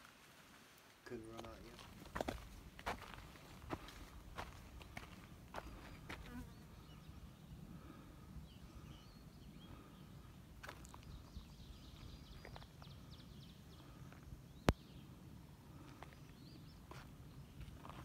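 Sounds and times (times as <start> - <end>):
insects buzzing: 4.4 - 9.0.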